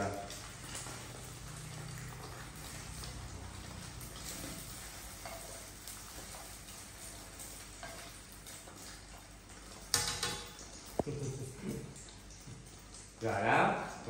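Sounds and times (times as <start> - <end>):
egg sizzling in a frying pan: 0.0 - 14.0
chopsticks scraping a pan: 4.1 - 6.6.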